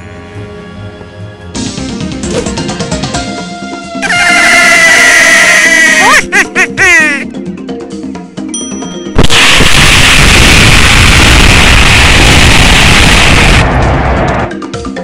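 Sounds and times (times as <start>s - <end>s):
music: 0.0s - 10.7s, 11.4s - 15.0s
explosion blast: 9.2s - 14.5s.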